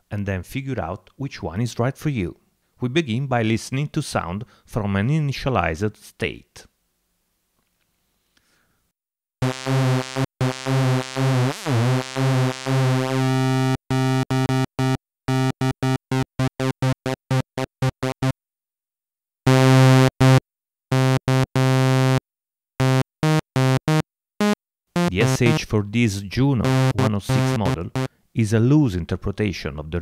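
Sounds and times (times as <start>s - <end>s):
synthesizer repeated bright note: 9.4s - 18.3s, 22.8s - 25.8s, 26.5s - 28.1s.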